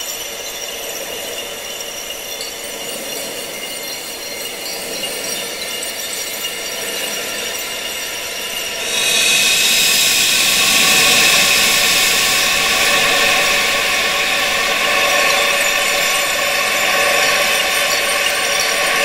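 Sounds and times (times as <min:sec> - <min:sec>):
wind rushing hiss: 0:04.0 - 0:19.0.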